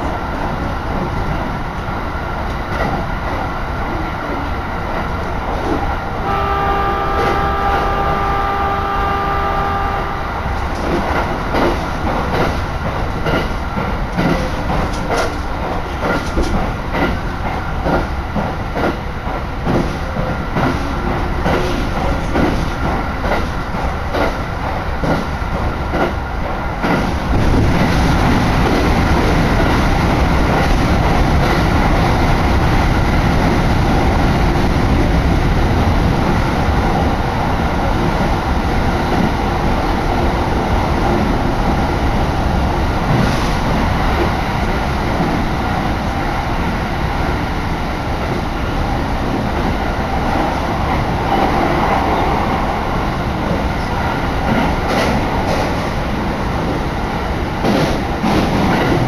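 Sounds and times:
train rumbling in a tunnel: 0.0s - 59.0s
train wheels clattering over rail joints: 10.6s - 31.8s, 54.4s - 56.1s, 57.6s - 59.0s.

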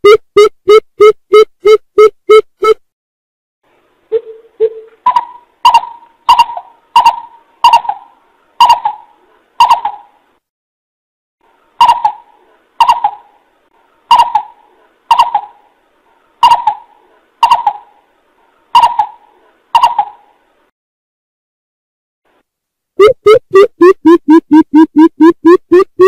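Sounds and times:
bird hooting: 4.1s - 10.1s, 11.8s - 13.3s, 14.1s - 15.6s, 16.4s - 17.9s, 18.8s - 19.2s.

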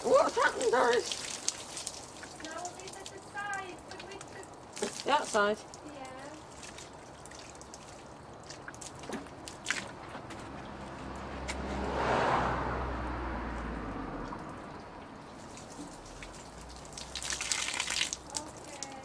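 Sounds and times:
water splashing onto plastic bin: 0.0s - 10.8s, 15.1s - 19.0s
passing vehicle: 10.0s - 16.7s.

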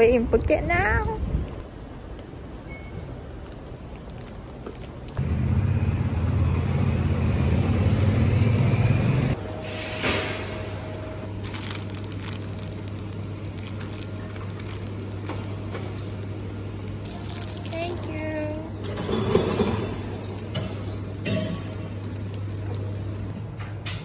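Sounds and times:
plastic bag crinkling: 3.4s - 5.2s, 11.2s - 19.0s, 21.6s - 23.3s.

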